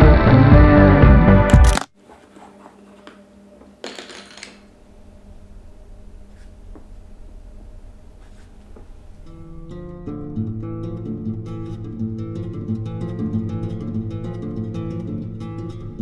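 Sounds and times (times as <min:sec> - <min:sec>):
steady low hum: 0:04.6 - 0:14.5
marker drawing on paper: 0:08.2 - 0:08.5.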